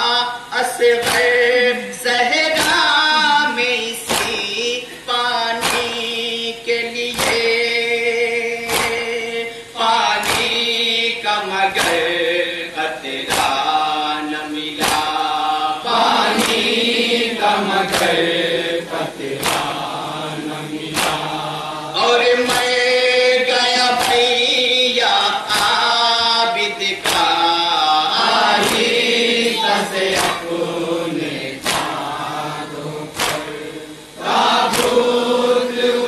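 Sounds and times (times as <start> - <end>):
men chanting a lament: 0.0 - 36.0
chest-beating slaps: 1.0 - 1.4, 2.6 - 3.4, 4.0 - 4.6, 5.6 - 6.1, 7.1 - 7.6, 8.6 - 9.1, 10.2 - 10.7, 11.8 - 12.2, 13.1 - 13.9, 14.8 - 17.0, 17.9 - 18.4, 19.2 - 20.0, 20.7 - 21.7, 22.4 - 22.8, 23.9 - 24.4, 25.2 - 25.9, 27.0 - 27.4, 28.2 - 30.7, 31.5 - 32.5, 33.1 - 35.2.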